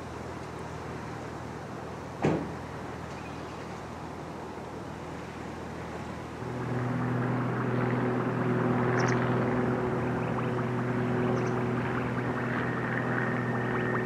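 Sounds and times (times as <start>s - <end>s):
diesel train engines humming: 3.7s - 14.0s
train rumble: 6.3s - 14.0s.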